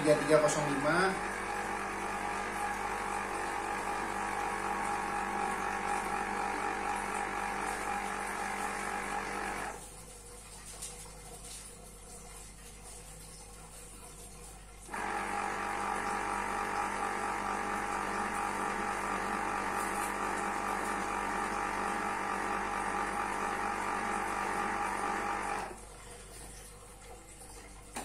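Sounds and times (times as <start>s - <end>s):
citrus press motor whirring: 0.8s - 9.8s, 14.9s - 25.8s.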